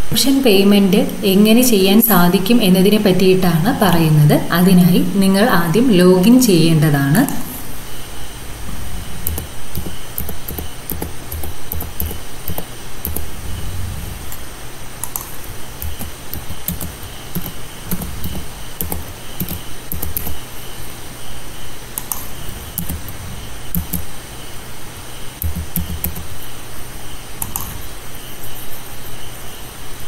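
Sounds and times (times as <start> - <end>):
steady low hum: 0.0 - 30.0
computer keyboard typing: 9.2 - 13.6, 15.0 - 20.4, 22.0 - 23.1, 25.4 - 26.3.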